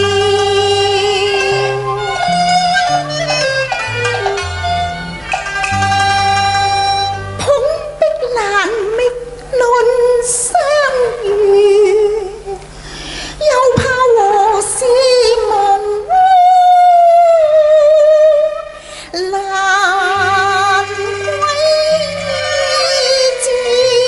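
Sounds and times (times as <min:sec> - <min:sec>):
woman singing opera: 0:00.0 - 0:03.0, 0:07.3 - 0:12.7, 0:13.4 - 0:24.0
instrumental accompaniment: 0:00.0 - 0:12.5, 0:16.8 - 0:24.0.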